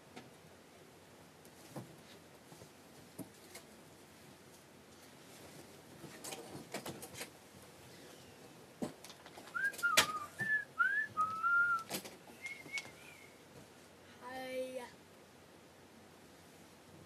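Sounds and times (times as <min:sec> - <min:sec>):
rustling: 0:01.4 - 0:14.0
person whistling gliding notes: 0:09.6 - 0:13.4.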